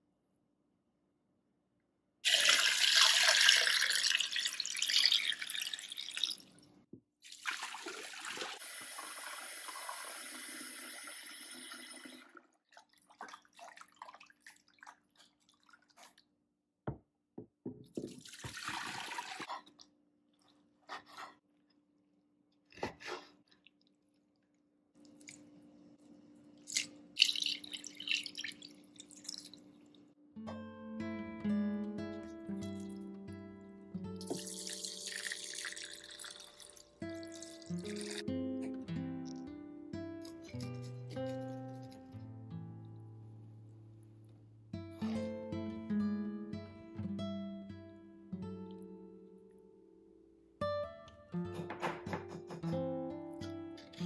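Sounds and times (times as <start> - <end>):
water running: 2.2 - 6.4, 7.2 - 16.2, 17.9 - 19.5, 26.6 - 30.0, 34.2 - 38.2
water pouring into glass bowl: 2.2 - 6.5, 26.7 - 29.6, 34.2 - 38.2
hands rinsing meat in water: 12.6 - 16.4, 18.0 - 19.5.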